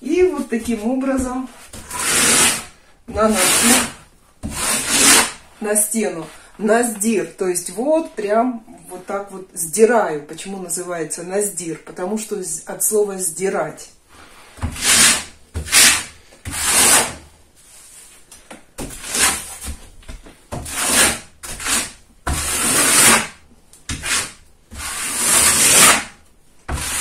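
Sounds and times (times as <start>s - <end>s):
trowel scraping wet plaster: 0.2s - 5.6s, 14.5s - 17.2s, 18.8s - 19.8s, 20.5s - 27.0s.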